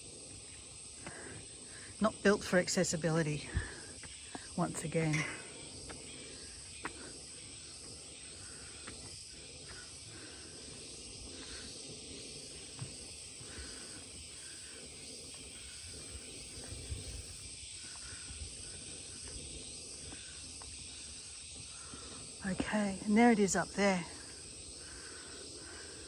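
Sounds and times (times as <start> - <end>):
forest insects droning: 0.0 - 26.0
soft footsteps: 12.1 - 13.8.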